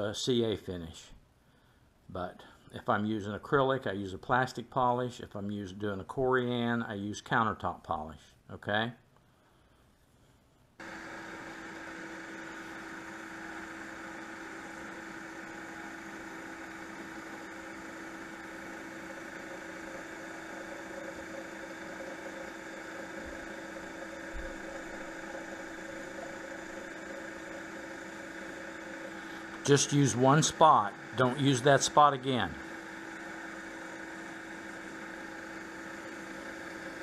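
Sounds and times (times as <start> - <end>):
wood lathe motor hum: 10.8 - 37.0.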